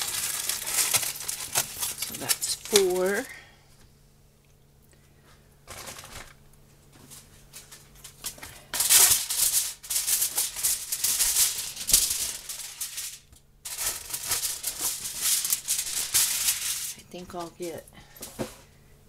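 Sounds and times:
aluminium foil crinkling: 0:00.0 - 0:03.5, 0:05.6 - 0:18.5.

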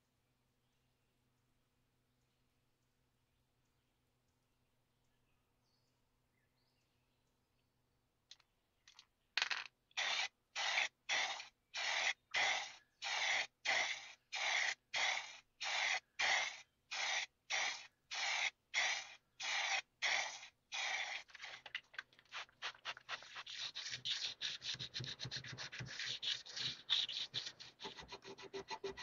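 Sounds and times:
spray paint can hissing: 0:10.0 - 0:29.0.

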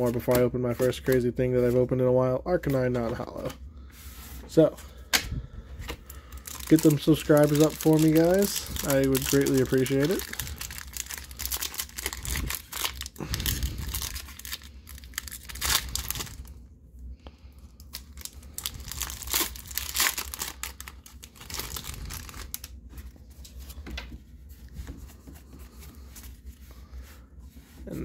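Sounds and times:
wrapper crinkling: 0:06.1 - 0:16.6, 0:17.8 - 0:23.7
foil pack tearing: 0:06.2 - 0:16.5, 0:17.9 - 0:22.7.

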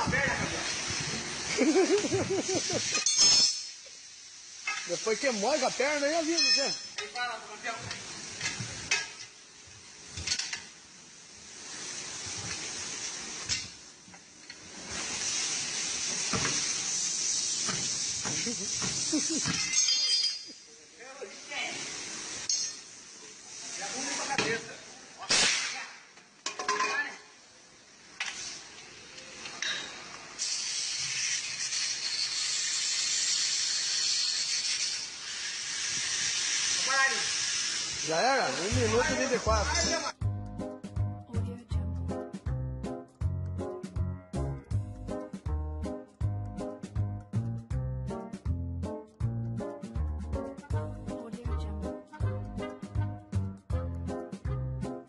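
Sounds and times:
steady hiss: 0:00.0 - 0:40.8.

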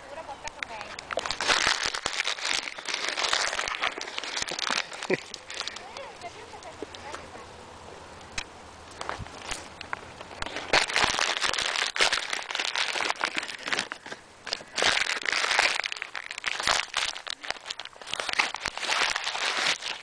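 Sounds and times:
small crackling clicks: 0:00.4 - 0:05.9
crinkling and rustling: 0:00.4 - 0:07.3, 0:08.9 - 0:20.0.

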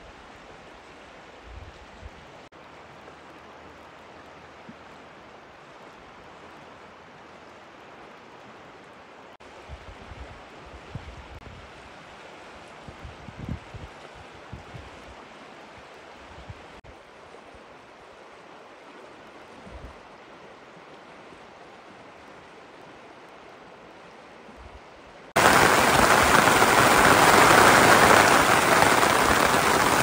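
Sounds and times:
close rain hitting a surface: 0:25.3 - 0:30.0
rain falling: 0:25.3 - 0:30.0.

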